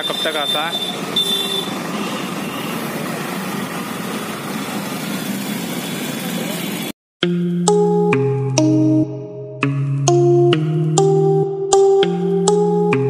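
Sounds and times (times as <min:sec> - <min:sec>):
outdoor street noise: 0:00.0 - 0:07.0
vehicle engine running: 0:00.9 - 0:06.9
music: 0:07.2 - 0:13.0.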